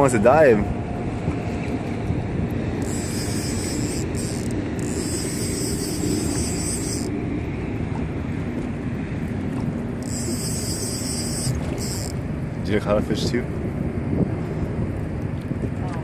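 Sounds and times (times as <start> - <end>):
water washing around boat: 0.0 - 16.0
wind buffeting microphone: 0.0 - 16.0
high hissing buzz: 2.8 - 7.1, 10.0 - 12.2.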